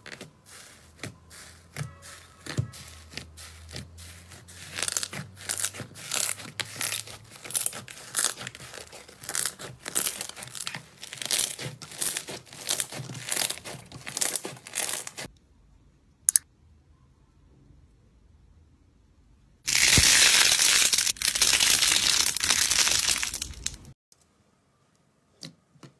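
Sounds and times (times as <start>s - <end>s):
slime squishing: 0.0s - 15.3s
sharp click: 16.3s - 16.5s.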